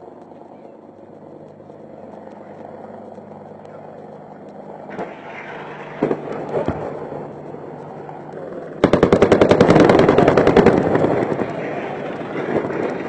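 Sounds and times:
helicopter drone: 0.0s - 13.0s
rapid automatic gunfire: 8.8s - 13.0s.

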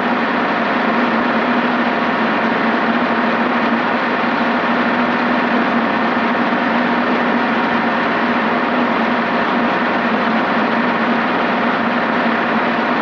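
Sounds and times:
helicopter engine and rotor drone: 0.0s - 13.0s.

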